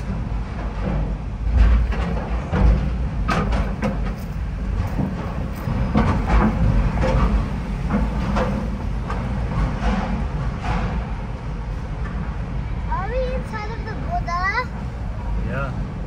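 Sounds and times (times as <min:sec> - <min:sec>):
knocks and clatters: 0:00.0 - 0:11.4
low road rumble: 0:00.0 - 0:16.0.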